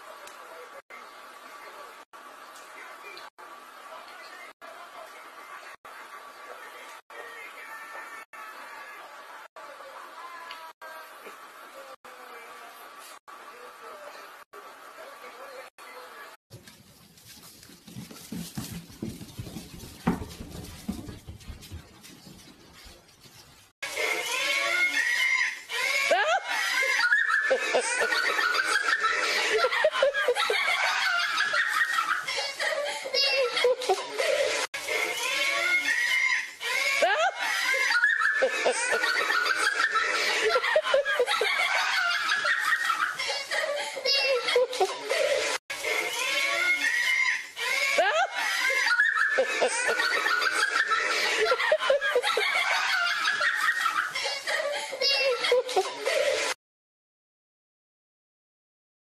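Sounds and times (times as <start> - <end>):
people laughing: 23.9 - 56.6
small child giggling: 24.2 - 56.6.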